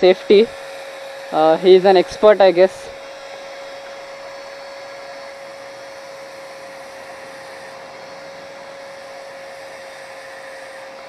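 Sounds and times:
electric drill whining: 0.0s - 11.0s.

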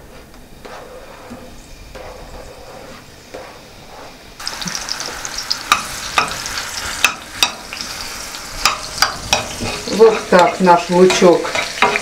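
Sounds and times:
onion sizzling in frying pan: 3.0s - 12.0s.

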